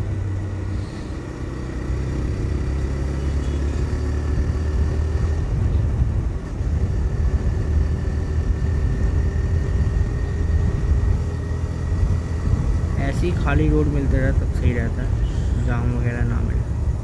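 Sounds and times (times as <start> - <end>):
motorcycle engine accelerating: 0.0 - 17.0
wind rushing over microphone: 4.0 - 17.0.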